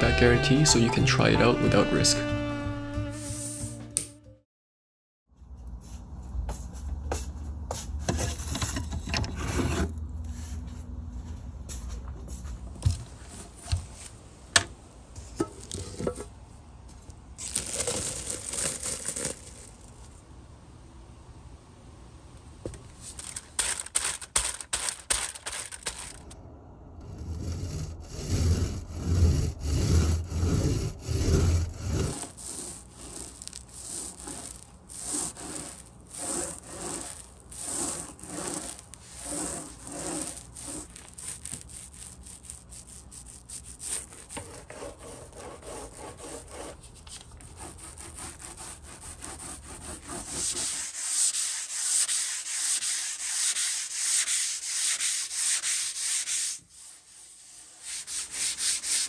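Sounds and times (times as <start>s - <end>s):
sanding sponge scrubbing: 28.2s - 46.8s, 47.4s - 59.0s.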